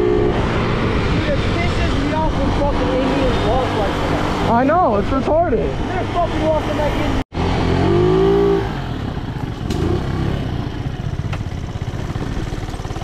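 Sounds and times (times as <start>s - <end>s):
moped engine running: 6.0s - 13.0s.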